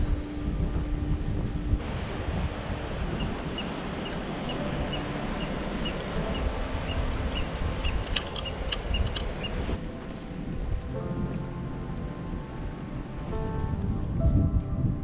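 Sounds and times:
wind buffeting microphone: 0:00.0 - 0:15.0
bird peeping: 0:05.8 - 0:09.6.

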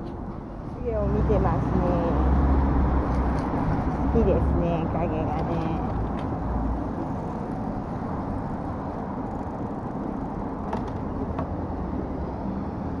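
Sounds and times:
stroller wheels rolling on asphalt: 0:00.1 - 0:13.0.

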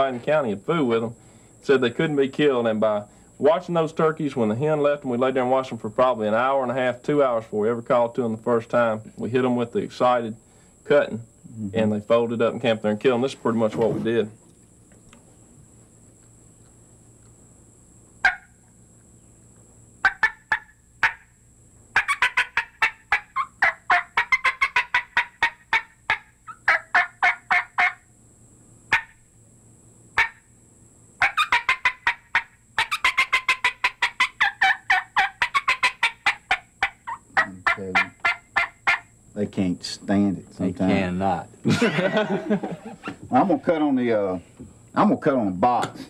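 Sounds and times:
turkey call clucks and cuts: 0:18.2 - 0:18.8, 0:20.0 - 0:21.3, 0:21.9 - 0:28.0, 0:28.9 - 0:29.2, 0:30.2 - 0:30.5, 0:31.2 - 0:39.1.

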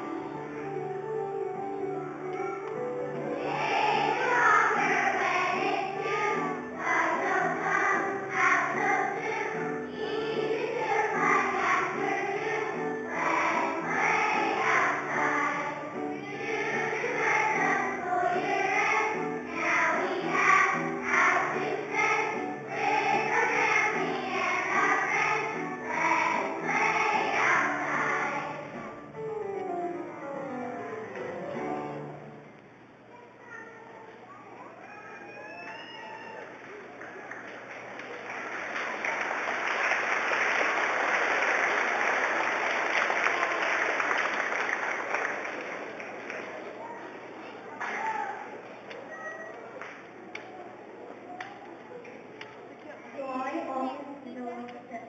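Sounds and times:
children's choir singing: 0:00.0 - 0:32.4.

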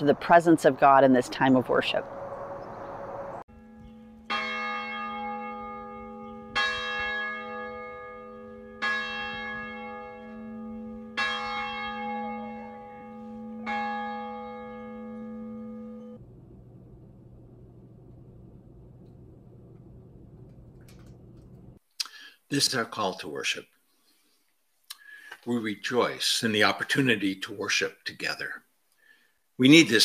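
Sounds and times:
church bell tolling: 0:03.5 - 0:16.2.

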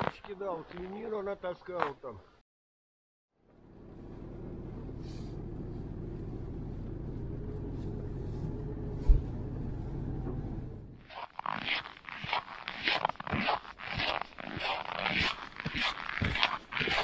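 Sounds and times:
vehicle engine rumbling: 0:03.4 - 0:11.6.

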